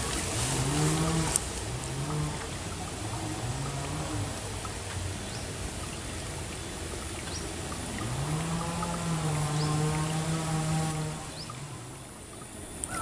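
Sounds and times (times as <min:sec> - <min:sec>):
river water flowing: 0:00.0 - 0:13.0.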